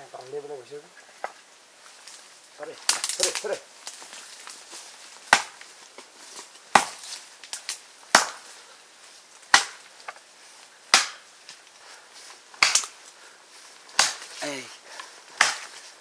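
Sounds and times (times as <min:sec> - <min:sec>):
sharp chopping strikes: 0:05.3 - 0:05.6, 0:06.7 - 0:07.1, 0:08.1 - 0:08.4, 0:09.5 - 0:09.8, 0:10.9 - 0:11.2, 0:12.6 - 0:12.9, 0:13.9 - 0:14.3, 0:15.4 - 0:15.8.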